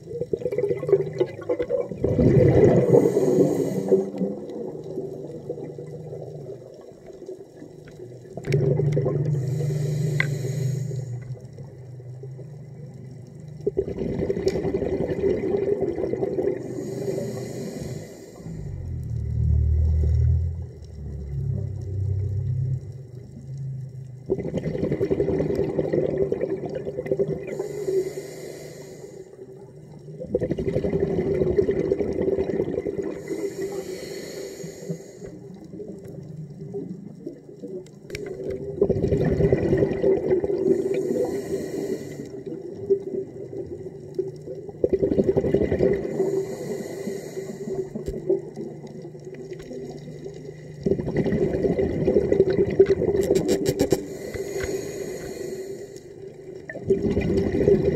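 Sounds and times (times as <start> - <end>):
hiss of bubbles: 0.0 - 57.9
diver breathing through regulator: 2.5 - 4.4, 9.2 - 11.5, 16.6 - 23.1, 27.5 - 29.4, 33.1 - 35.6, 40.6 - 42.6, 46.0 - 48.1, 53.8 - 56.4.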